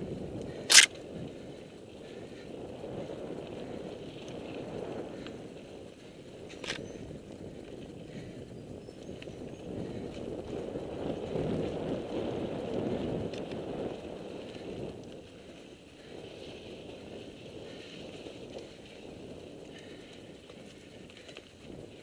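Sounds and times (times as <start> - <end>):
bike rattling: 0.0 - 22.0
wind on microphone: 0.0 - 22.0.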